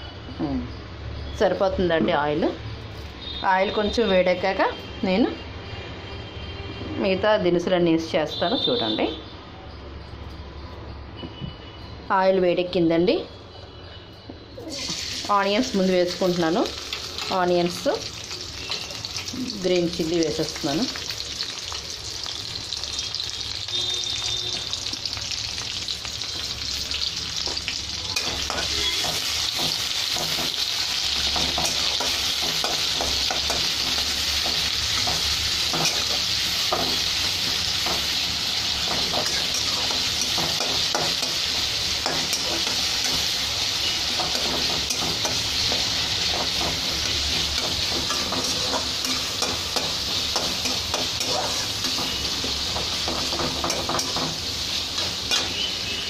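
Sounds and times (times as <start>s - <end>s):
onions sizzling in hot oil: 14.6s - 56.0s.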